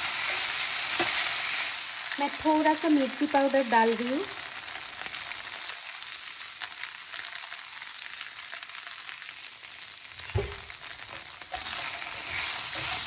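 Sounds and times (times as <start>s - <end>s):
food sizzling in oil: 0.0s - 13.0s
low thump: 10.3s - 10.7s.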